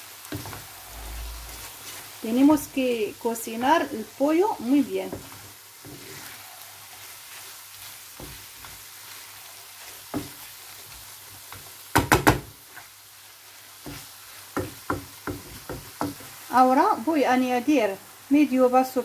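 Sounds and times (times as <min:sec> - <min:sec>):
filling sizzling in a frying pan: 0:00.0 - 0:19.0
wooden spoon stirring: 0:00.3 - 0:11.8
spoon knocking against pan: 0:11.9 - 0:12.5, 0:14.6 - 0:16.3.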